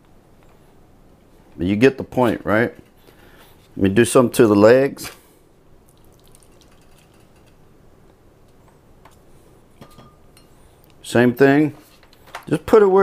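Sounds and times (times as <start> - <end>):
liquid drips: 5.8 - 7.5.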